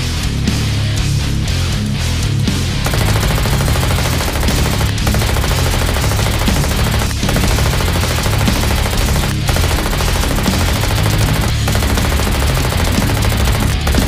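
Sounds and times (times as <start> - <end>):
rapid machine-gun fire: 2.8 - 14.0.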